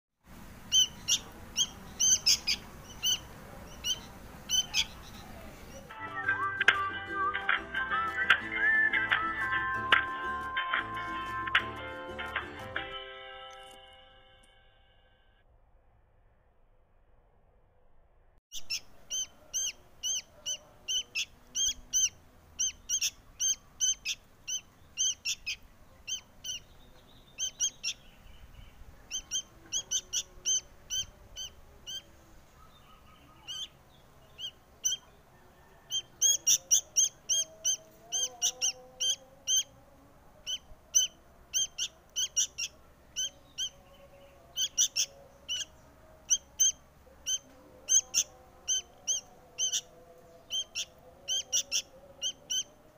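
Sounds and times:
fledgling bird begging chirps: 0:00.6 - 0:05.9, 0:18.5 - 0:39.8, 0:40.4 - 0:52.9.

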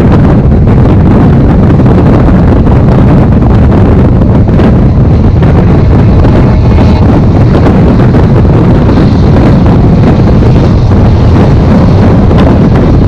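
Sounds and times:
train rumbling on track: 0:00.0 - 0:13.0
wind buffeting microphone: 0:00.0 - 0:13.0.

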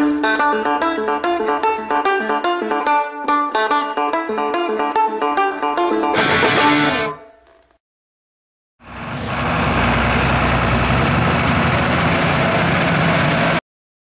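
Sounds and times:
tractor diesel engine running: 0:08.8 - 0:13.6.

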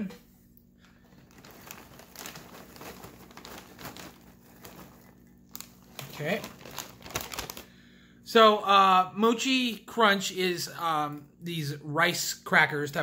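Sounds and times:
plastic bag crinkling: 0:00.7 - 0:07.8.

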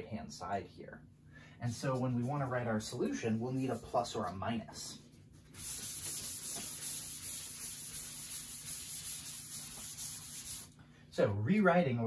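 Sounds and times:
rag rubbing on chalkboard: 0:05.4 - 0:10.7.

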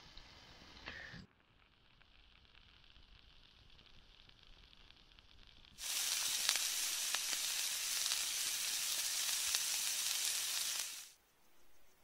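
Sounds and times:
meat sizzling with pops: 0:00.0 - 0:11.2.

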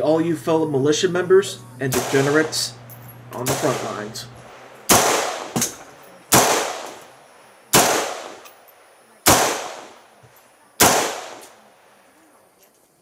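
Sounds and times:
rifle shots with echo: 0:01.9 - 0:02.8, 0:03.4 - 0:08.6, 0:09.2 - 0:10.1, 0:10.8 - 0:11.6.

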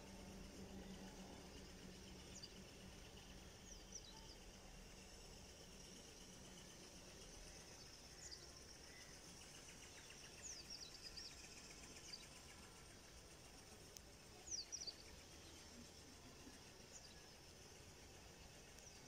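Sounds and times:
high insect hiss: 0:00.0 - 0:19.0.

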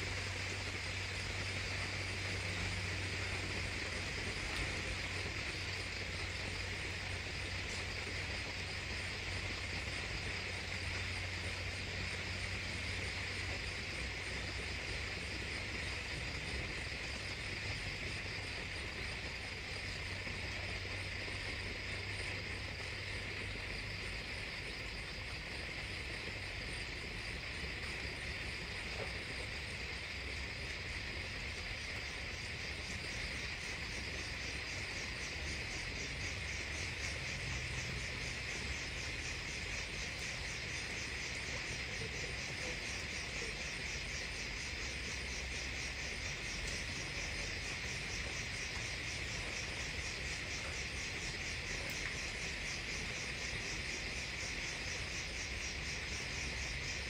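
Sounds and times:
crickets chirping: 0:00.0 - 0:57.0
fast pulsing insect trill: 0:25.8 - 0:57.0.

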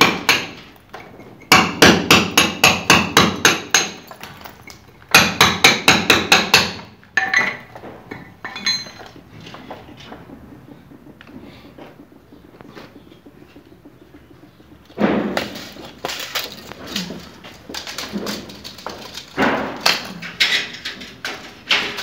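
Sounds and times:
hammer striking plastered wall: 0:01.5 - 0:04.0, 0:05.1 - 0:06.9.

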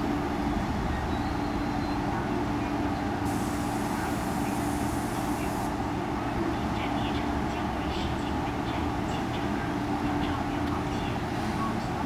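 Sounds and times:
train equipment humming: 0:00.0 - 0:06.8
high hiss: 0:03.3 - 0:05.7.

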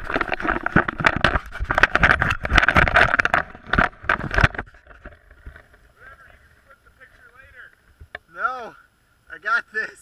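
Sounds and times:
camera handling rubbing and scraping: 0:00.0 - 0:06.4.

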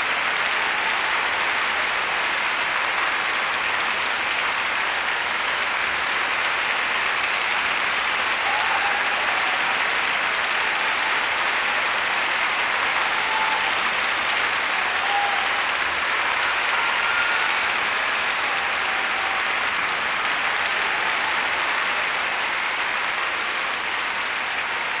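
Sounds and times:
audience applauding: 0:00.0 - 0:25.0
crowd calling out: 0:08.3 - 0:22.8.

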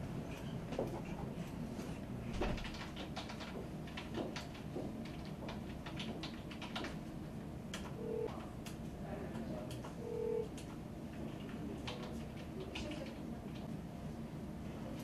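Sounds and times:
low room hum: 0:00.0 - 0:15.0
computer keyboard typing: 0:02.4 - 0:07.1, 0:07.7 - 0:13.7.

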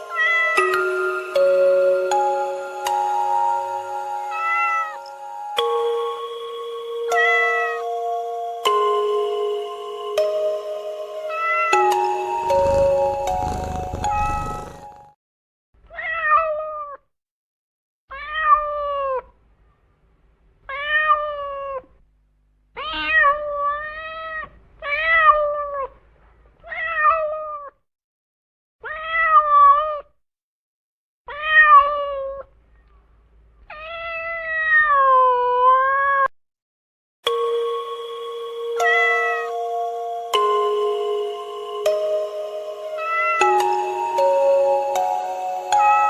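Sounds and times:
cat meowing: 0:00.1 - 0:00.6, 0:04.3 - 0:05.0, 0:07.1 - 0:07.8, 0:11.3 - 0:11.8, 0:13.9 - 0:14.8, 0:15.9 - 0:17.1, 0:18.1 - 0:19.4, 0:20.7 - 0:21.9, 0:22.8 - 0:26.0, 0:26.6 - 0:27.8, 0:28.8 - 0:30.1, 0:31.3 - 0:32.5, 0:33.7 - 0:36.3, 0:38.8 - 0:39.5, 0:43.0 - 0:43.5
steady musical tones: 0:39.5 - 0:45.8.

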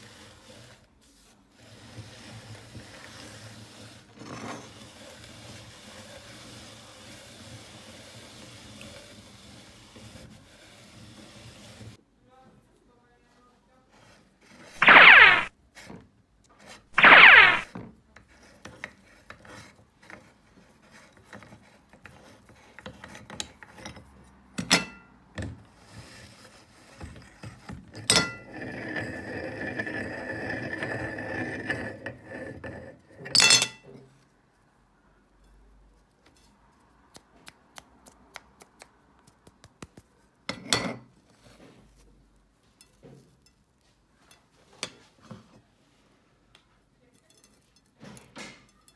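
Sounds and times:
gritty metal scraping: 0:28.0 - 0:33.4.

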